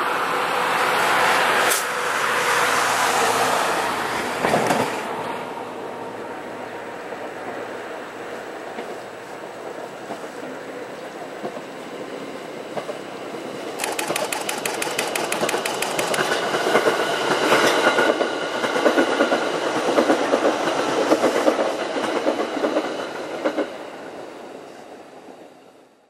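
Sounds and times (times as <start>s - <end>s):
train rumble: 0.0s - 25.6s
wheel clicks over rail: 13.8s - 16.8s.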